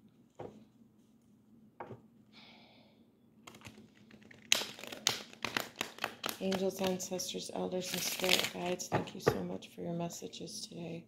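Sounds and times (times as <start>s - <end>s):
cards flicking while shuffled: 3.5s - 7.0s
cards rustling: 3.5s - 7.0s, 7.8s - 8.6s.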